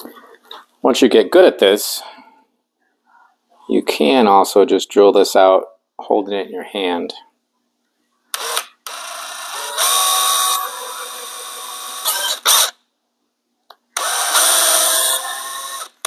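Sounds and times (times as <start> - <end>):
power drill boring into plastic: 8.4 - 12.8, 14.0 - 16.0.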